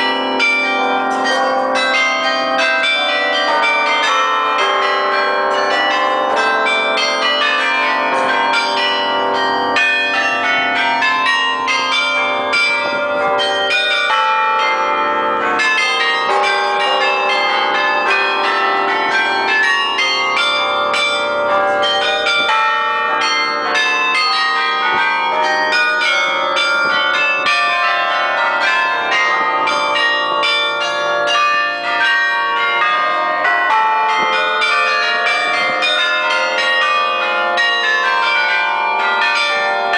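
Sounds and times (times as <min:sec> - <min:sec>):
carillon bells playing a tune: 0:00.0 - 0:39.9.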